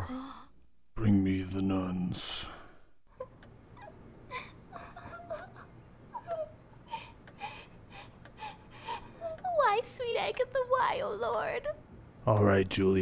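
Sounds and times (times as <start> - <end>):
woman sobbing: 3.1 - 11.8.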